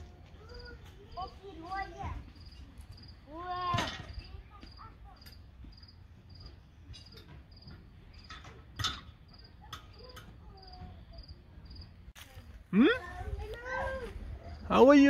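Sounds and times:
faint children's voices: 0:00.0 - 0:15.0
insect chirping: 0:00.5 - 0:03.4, 0:04.1 - 0:08.5, 0:09.2 - 0:12.0.

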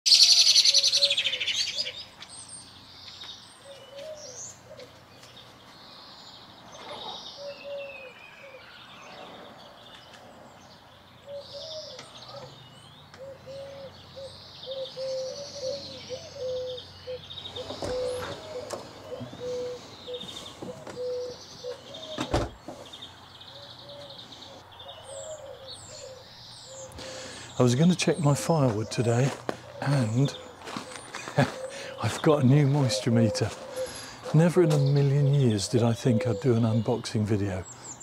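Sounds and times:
loud close bird call: 0:00.1 - 0:02.7, 0:06.7 - 0:36.9
small birds chirping and trilling: 0:00.1 - 0:38.0
pigeon cooing: 0:00.3 - 0:02.0, 0:06.8 - 0:09.6, 0:11.3 - 0:12.6, 0:13.2 - 0:22.5, 0:23.5 - 0:36.8.

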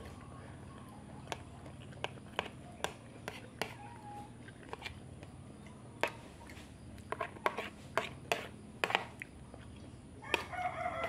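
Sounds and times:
metal spoon scraping plastic plate: 0:02.0 - 0:03.8, 0:04.7 - 0:05.0, 0:07.1 - 0:09.2.

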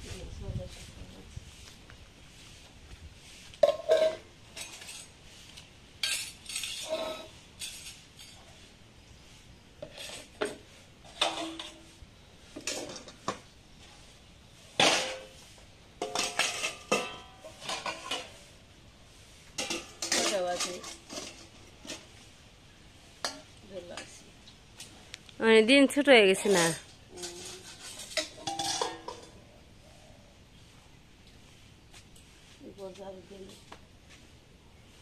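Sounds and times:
steel bowls and mug clanking: 0:03.6 - 0:05.1, 0:16.0 - 0:18.3, 0:27.3 - 0:29.4.

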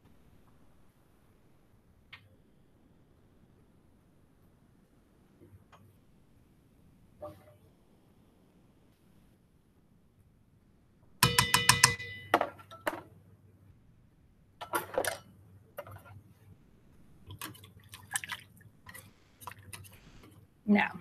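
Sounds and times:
metal utensils clattering: 0:14.6 - 0:15.2.

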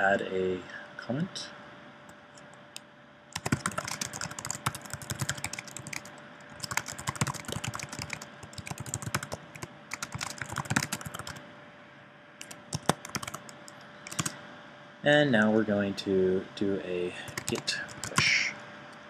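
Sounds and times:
fast typing on a keyboard: 0:03.4 - 0:11.4, 0:12.4 - 0:14.3, 0:17.2 - 0:18.3.

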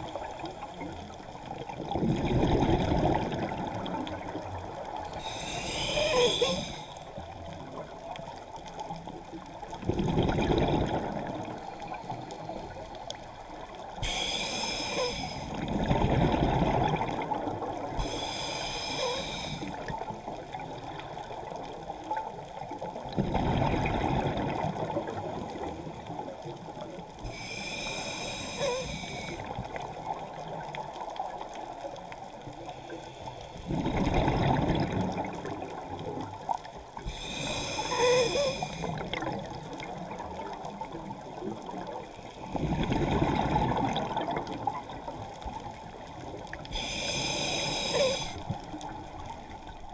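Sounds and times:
exhaled bubbles rushing: 0:01.7 - 0:04.4, 0:09.8 - 0:11.6, 0:15.5 - 0:17.9, 0:23.1 - 0:25.2, 0:33.7 - 0:35.8, 0:42.6 - 0:45.1
regulator hissing inhale: 0:05.1 - 0:07.2, 0:14.0 - 0:15.6, 0:18.0 - 0:19.9, 0:27.2 - 0:29.5, 0:32.6 - 0:33.8, 0:37.0 - 0:39.1, 0:46.6 - 0:48.7.

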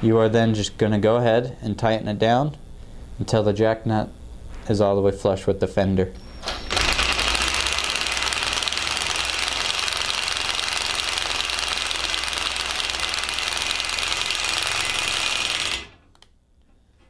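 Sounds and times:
impact driver hammering: 0:06.7 - 0:16.0.

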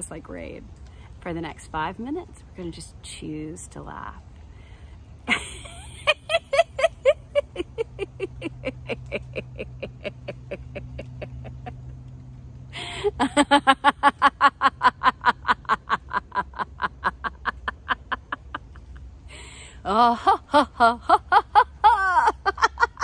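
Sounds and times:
woman laughing: 0:05.3 - 0:12.0, 0:12.8 - 0:23.0.

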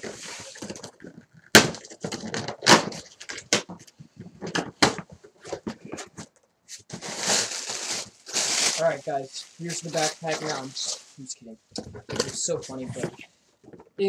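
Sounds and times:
cardboard flaps scraping and rustling: 0:01.8 - 0:11.0.

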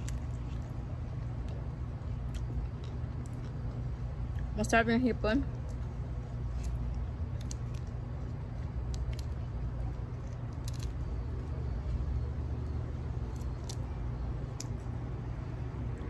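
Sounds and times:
low background rumble: 0:00.0 - 0:16.0
shrimp shells cracking: 0:06.6 - 0:11.3, 0:13.2 - 0:14.9.

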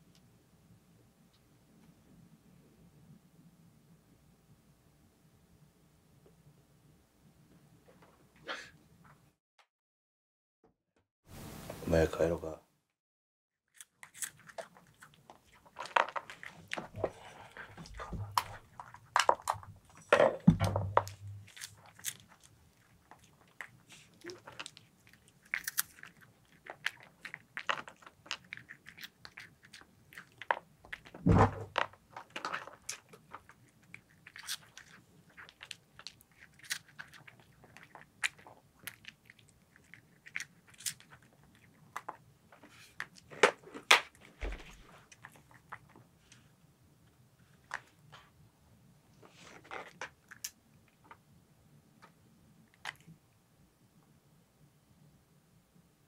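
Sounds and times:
cat crunching dry food: 0:13.8 - 0:20.1, 0:20.8 - 0:31.2, 0:31.8 - 0:42.3.

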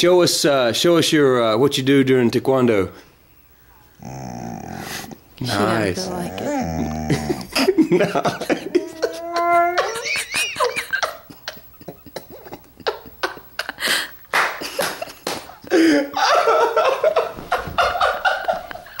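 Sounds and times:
dog whining: 0:03.9 - 0:07.5, 0:08.7 - 0:10.4
dog grumbling yowl: 0:04.0 - 0:07.6, 0:08.6 - 0:10.2.

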